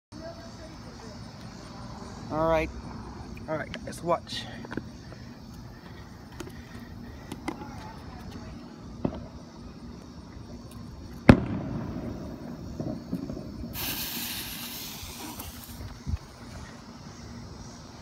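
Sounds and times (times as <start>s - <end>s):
firework bangs: 11.3s - 15.8s
fountain firework hissing: 11.4s - 16.0s.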